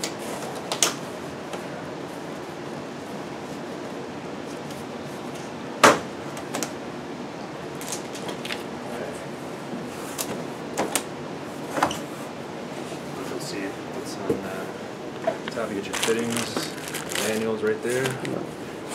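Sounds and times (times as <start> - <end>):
plastic strap cracking: 15.9 - 18.3.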